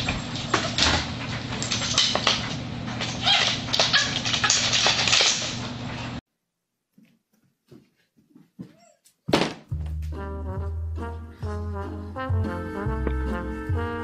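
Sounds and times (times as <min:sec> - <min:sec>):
wooden gate clattering on tile floor: 0:00.0 - 0:05.6.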